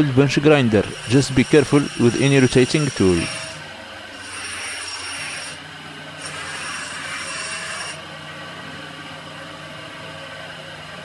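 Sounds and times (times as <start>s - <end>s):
grinder motor humming: 0.0s - 8.1s
bench grinder grinding metal: 0.6s - 5.6s, 6.2s - 8.0s.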